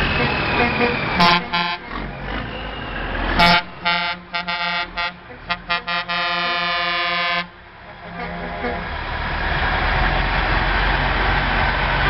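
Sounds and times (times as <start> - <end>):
truck engines rumbling: 0.0 - 12.0
truck air horn blasts: 0.1 - 2.0, 3.3 - 9.0.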